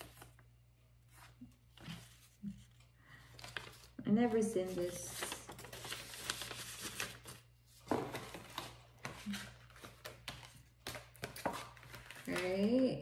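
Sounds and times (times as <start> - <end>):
paper packaging rustling: 0.0 - 13.0.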